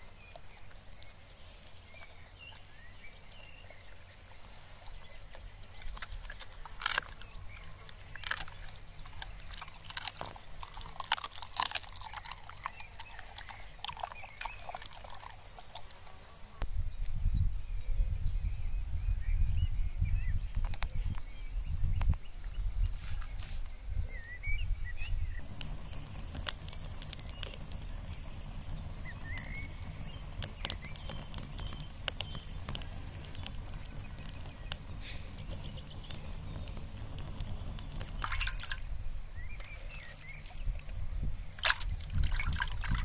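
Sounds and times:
low fire rumble: 0.0 - 15.7, 25.3 - 43.0
fire popping: 0.0 - 16.1, 25.4 - 43.0
campfire crackling: 0.0 - 16.6, 25.4 - 43.0.

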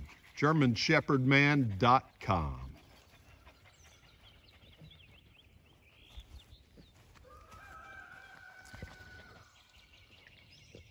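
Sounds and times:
small birds chirping: 0.0 - 7.4, 8.4 - 10.9
rooster crowing: 7.2 - 9.4.

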